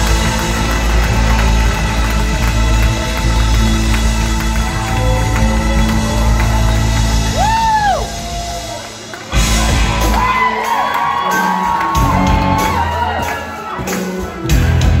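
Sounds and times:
crowd whooping and cheering: 0:00.0 - 0:15.0
live rock band playing: 0:00.0 - 0:15.0
drum hits: 0:09.3 - 0:10.4.

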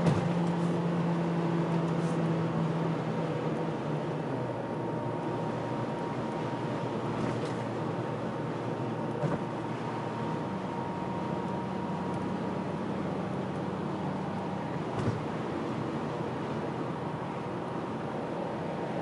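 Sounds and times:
light knocks from road: 0:00.0 - 0:00.6, 0:09.2 - 0:09.5, 0:14.9 - 0:15.3
low engine hum: 0:00.0 - 0:19.0
tyre and road noise: 0:00.0 - 0:19.0.

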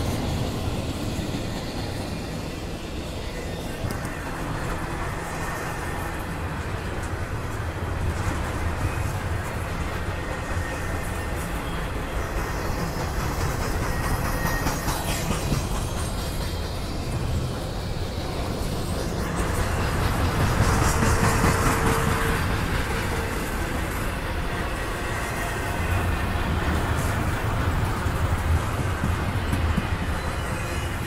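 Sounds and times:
steel wheels rumbling on rail: 0:00.0 - 0:31.0.

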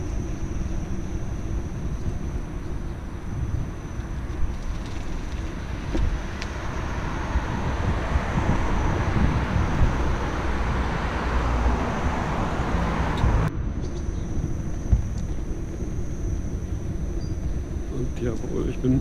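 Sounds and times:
tyre and road rumble: 0:00.0 - 0:19.0
wind buffeting microphone: 0:00.0 - 0:19.0.

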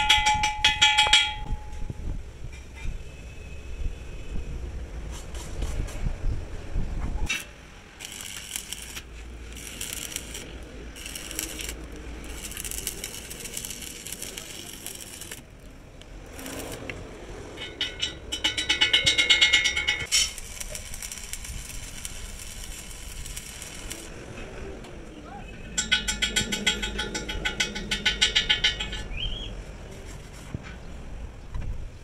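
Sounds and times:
arc welder crackling and sputtering: 0:07.3 - 0:17.8, 0:19.6 - 0:24.2.

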